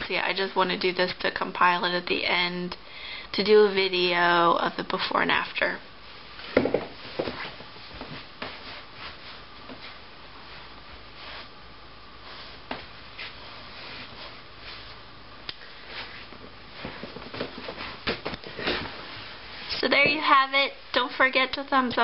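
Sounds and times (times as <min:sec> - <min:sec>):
clothing rustling: 0:06.0 - 0:11.6, 0:12.2 - 0:20.4
soft shuffling steps: 0:06.0 - 0:21.0.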